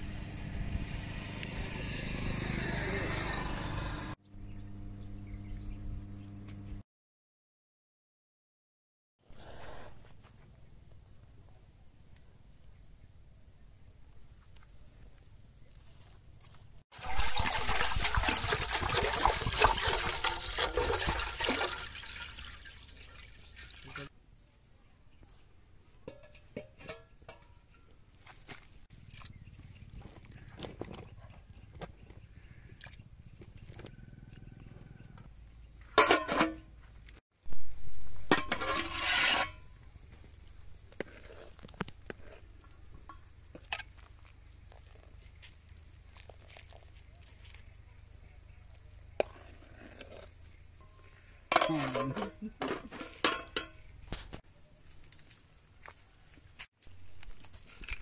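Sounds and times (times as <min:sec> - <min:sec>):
water pouring into metal pot: 0:17.0 - 0:24.1
metal lid and ladle clanking on pot: 0:26.0 - 0:27.9, 0:35.9 - 0:36.7, 0:38.3 - 0:39.6, 0:50.9 - 0:53.9
ladle clinking while stirring pot: 0:51.5 - 0:53.8.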